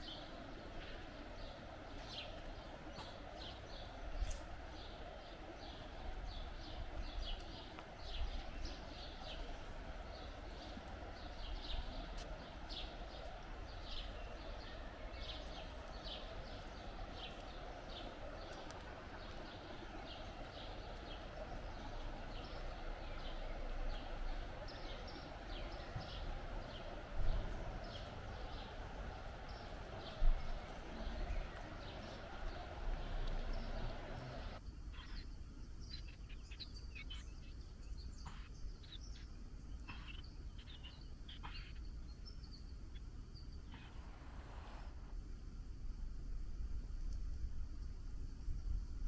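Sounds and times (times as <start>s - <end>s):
footsteps walking: 2.4s - 3.6s, 11.9s - 14.1s, 15.4s - 34.6s.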